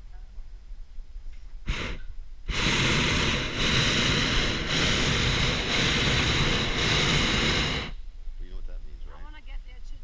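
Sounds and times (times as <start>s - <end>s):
propane burner roaring: 1.6s - 8.0s.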